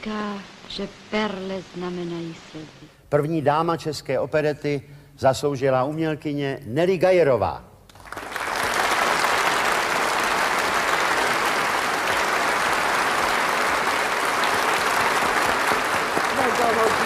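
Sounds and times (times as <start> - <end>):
audience applauding: 7.9 - 17.0.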